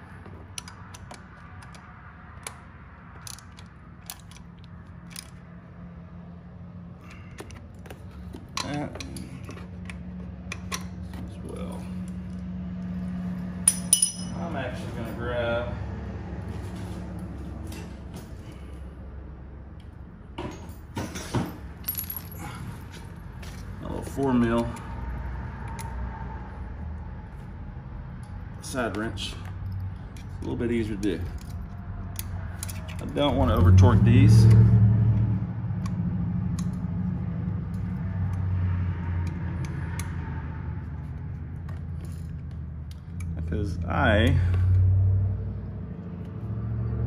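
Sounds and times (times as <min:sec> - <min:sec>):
hand tools clicking and knocking: 0:00.2 - 0:05.4, 0:07.1 - 0:11.4, 0:13.6 - 0:14.3.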